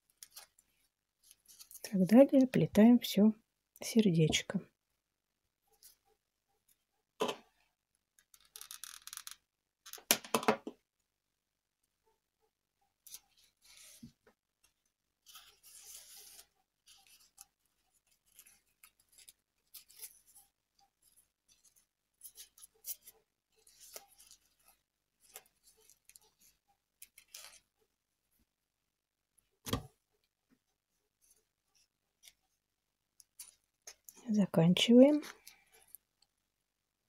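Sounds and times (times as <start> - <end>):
ribbon rustling: 0.0 - 2.5, 13.0 - 27.9, 29.7 - 34.3.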